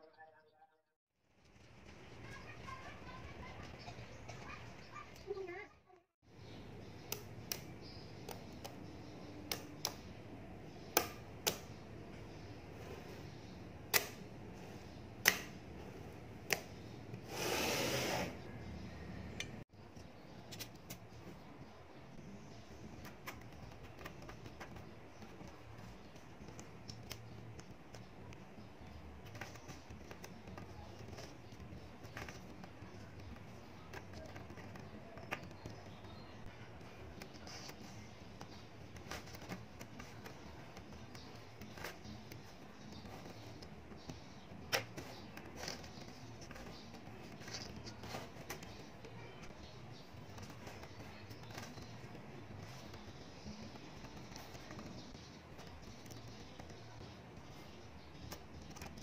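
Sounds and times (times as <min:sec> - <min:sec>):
magnetic balls clicking: 0:22.8 - 0:59.0.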